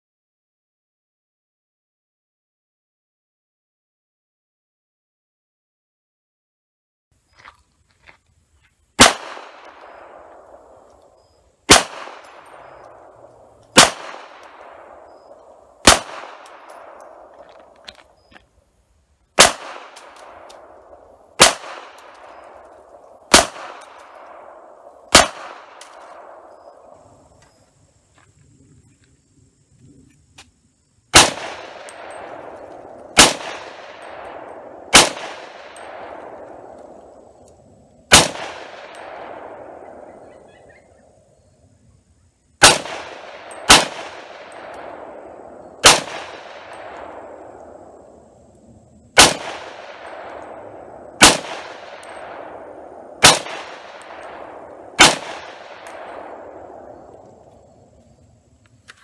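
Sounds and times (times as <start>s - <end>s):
rifle shots echoing: 9.0s - 18.2s, 19.4s - 27.3s, 31.1s - 37.4s, 38.1s - 41.0s, 42.6s - 48.5s, 49.1s - 57.9s.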